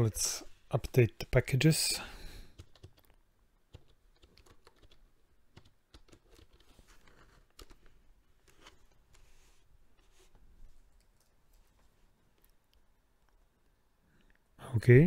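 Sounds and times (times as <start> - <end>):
faint keyboard typing: 2.3 - 13.5.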